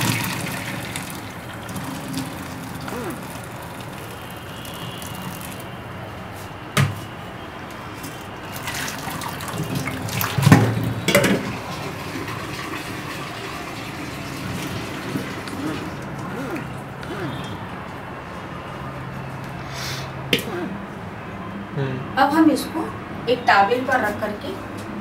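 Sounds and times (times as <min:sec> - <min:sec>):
water splashing through strainer: 0:00.0 - 0:05.7, 0:08.5 - 0:16.7.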